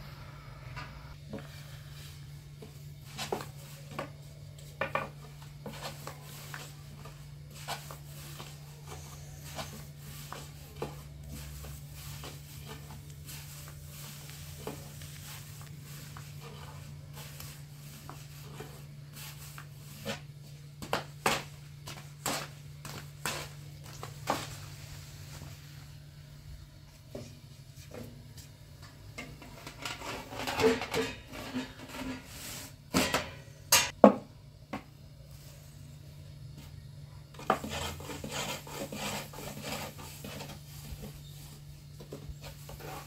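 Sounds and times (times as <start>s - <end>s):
low hum: 0.0s - 2.6s
pots and utensils clinking: 29.2s - 34.0s.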